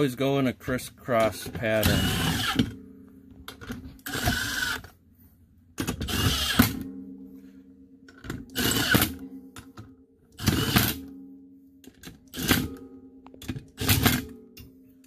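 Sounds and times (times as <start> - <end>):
cordless power driver bursts: 1.8 - 2.7, 6.0 - 6.8.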